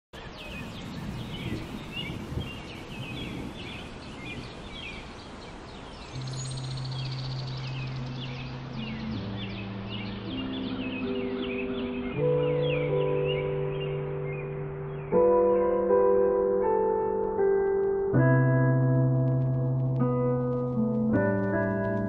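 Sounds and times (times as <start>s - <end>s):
birds chirping: 0.2s - 15.7s
ambient synth chords: 5.5s - 22.0s.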